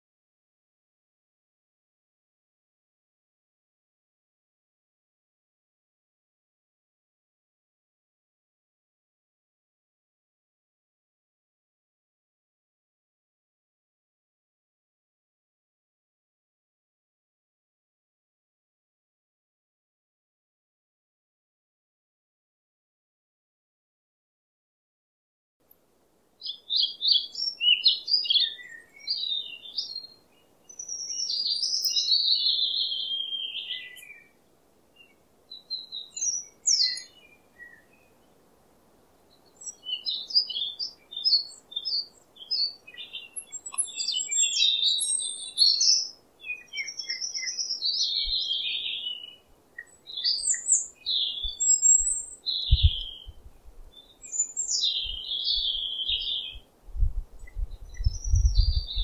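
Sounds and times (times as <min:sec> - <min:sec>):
small birds chirping: 0:26.4 - 0:38.5, 0:39.1 - 0:59.0.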